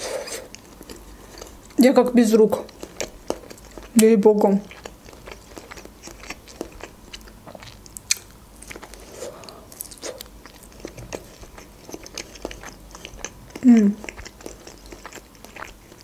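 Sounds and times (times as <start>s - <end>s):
wet chewing and biting: 2.6s - 16.0s.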